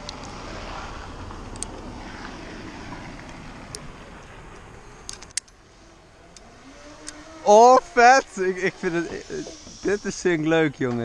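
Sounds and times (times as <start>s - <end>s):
sharp metal clicks: 5.0s - 5.6s.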